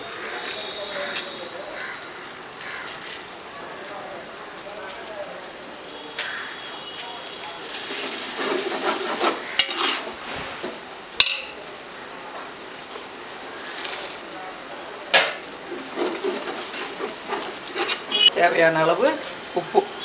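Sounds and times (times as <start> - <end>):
masala sizzling: 0.0 - 20.0
metal spatula scraping pot: 8.0 - 10.2, 15.8 - 18.3.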